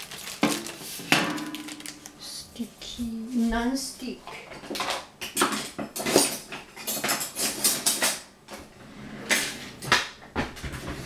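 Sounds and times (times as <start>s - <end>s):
metal kitchenware clattering: 4.3s - 8.3s.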